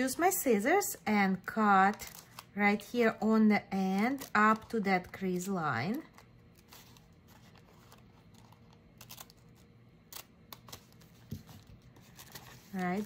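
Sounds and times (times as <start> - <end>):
scissors snipping paper: 7.6 - 11.0.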